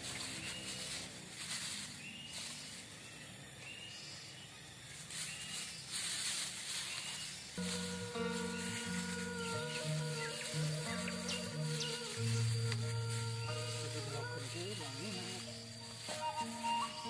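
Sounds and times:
insects buzzing: 0.0 - 17.0
plastic bags crinkling: 5.1 - 17.0.

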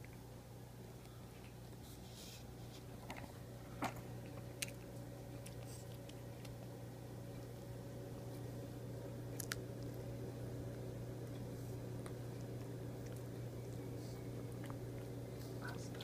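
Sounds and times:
steady low hum: 0.0 - 16.0
dog chewing with crunches: 3.8 - 7.5.

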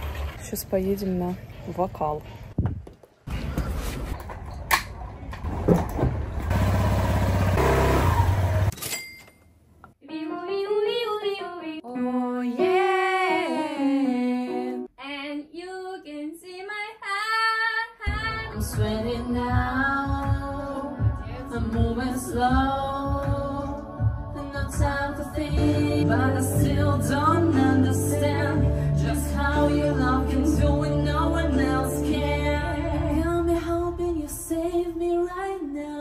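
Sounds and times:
motor scooter engine: 6.1 - 8.7
woman singing: 10.0 - 36.0
musical accompaniment: 18.4 - 34.8.

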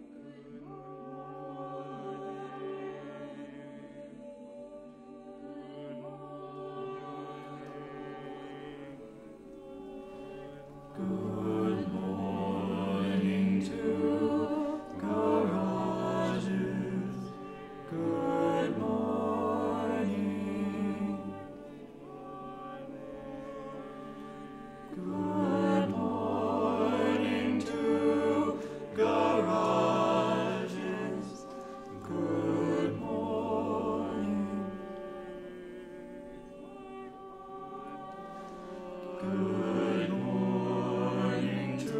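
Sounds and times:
choir singing held chords: 0.0 - 41.9.

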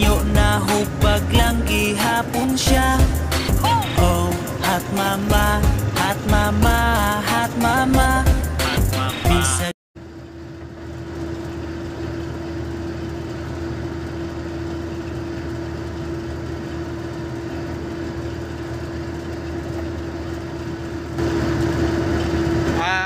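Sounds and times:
truck engine drone from cab: 0.0 - 9.7
music: 0.0 - 9.8.

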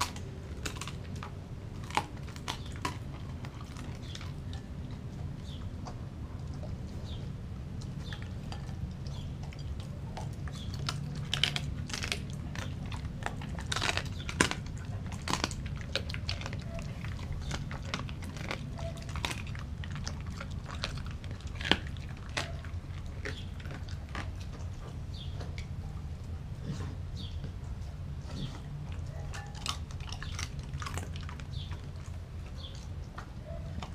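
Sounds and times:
dog chewing and crunching food: 0.0 - 33.9.

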